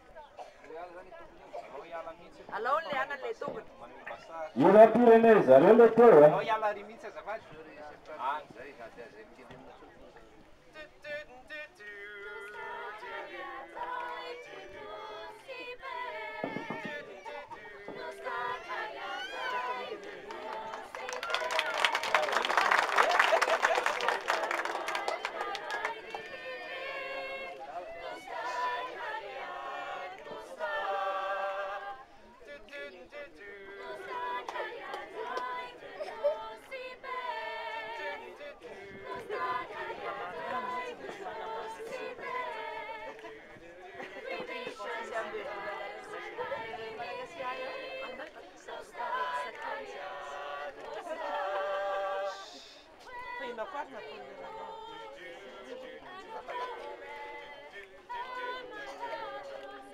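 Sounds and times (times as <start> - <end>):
young voices singing unaccompanied: 11.8 - 21.3, 24.2 - 59.9.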